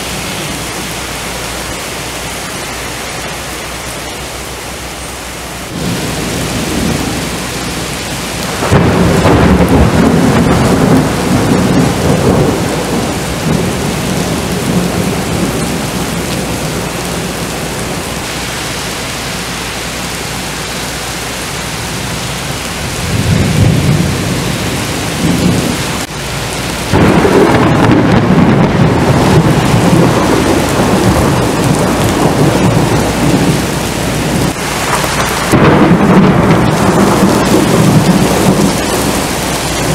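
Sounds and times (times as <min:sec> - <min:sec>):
heavy rain on pavement: 0:00.0 - 0:39.9
rumbling thunder: 0:05.7 - 0:18.0, 0:22.8 - 0:26.1, 0:26.8 - 0:39.9.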